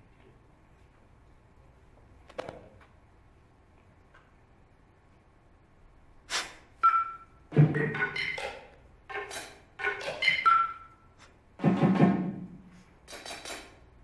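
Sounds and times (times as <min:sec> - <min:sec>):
tabletop percussion strikes: 0:06.8 - 0:10.9, 0:11.6 - 0:13.8.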